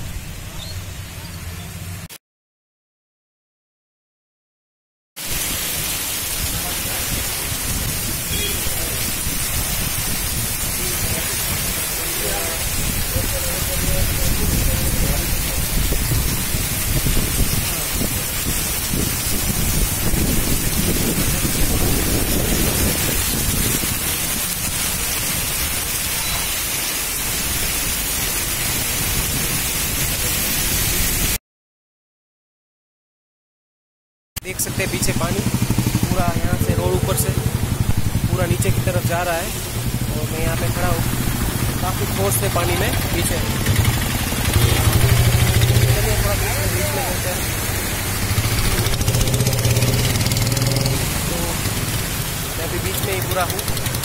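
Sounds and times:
heavy rain on a road: 0:05.2 - 0:31.4, 0:34.5 - 0:54.0
wind buffeting microphone: 0:12.7 - 0:25.2
deep rumble: 0:35.1 - 0:47.3.

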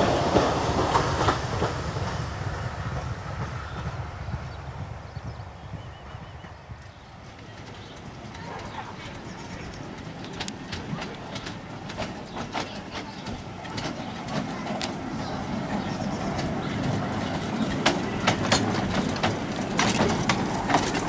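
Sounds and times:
wheels clicking over rails: 0:00.0 - 0:21.0
miniature locomotive running: 0:06.7 - 0:21.0.

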